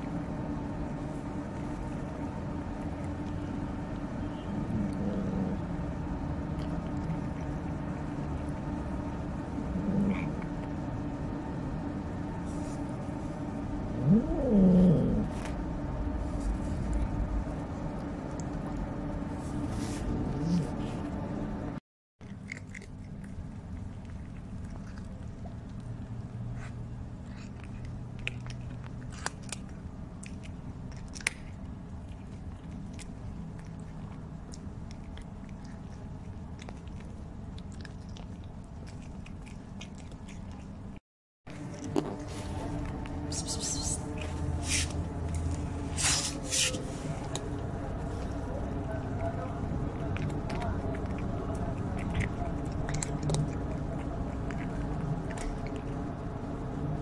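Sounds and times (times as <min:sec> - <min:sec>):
steady low hum: 0:00.0 - 0:57.0
cat crunching dry kibble: 0:22.2 - 0:41.0, 0:44.0 - 0:56.1.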